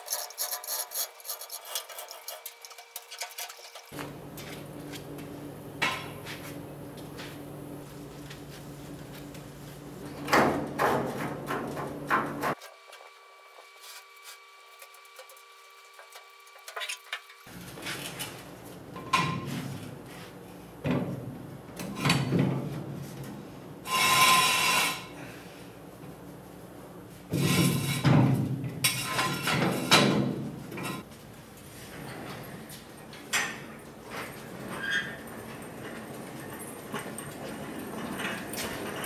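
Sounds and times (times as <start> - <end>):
metal panel scraping on floor: 23.9 - 25.1.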